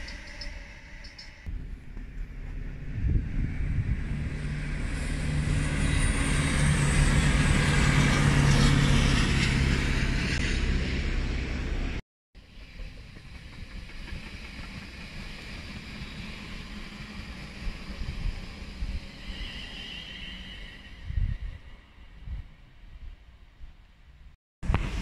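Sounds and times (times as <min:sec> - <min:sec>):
passing train rumble: 0:00.0 - 0:23.5
rail noise: 0:00.0 - 0:25.0.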